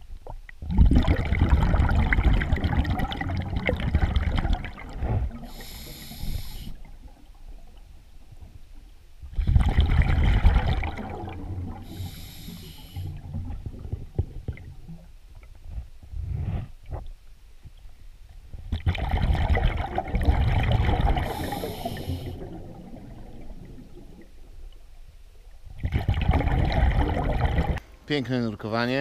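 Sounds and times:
exhaled bubbles rumbling: 0:00.0 - 0:12.4, 0:13.0 - 0:17.8, 0:18.4 - 0:27.8.

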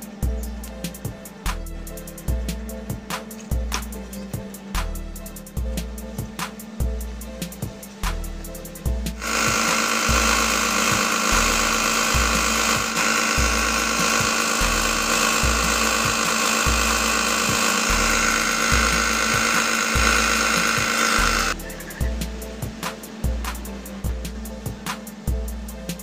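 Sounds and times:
music with bass beat: 0:00.0 - 0:26.0
belt sander whining: 0:09.1 - 0:25.4.

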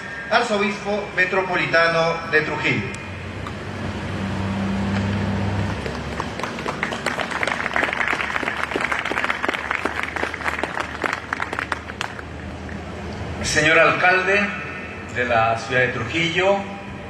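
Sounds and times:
audience applauding: 0:05.6 - 0:12.3.

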